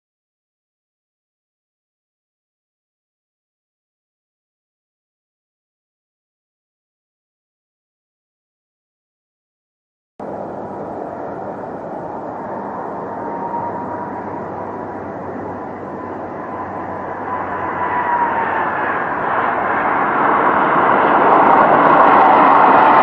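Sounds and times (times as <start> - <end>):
jet engines whining: 10.2 - 23.0.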